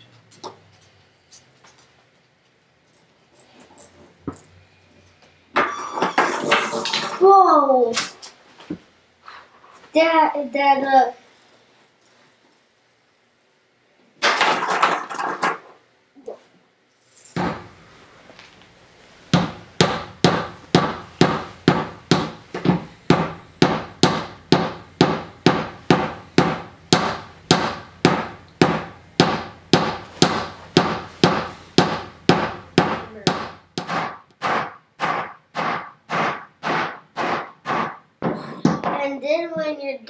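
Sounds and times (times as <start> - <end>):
small hammer knocking on wood: 19.3 - 39.0.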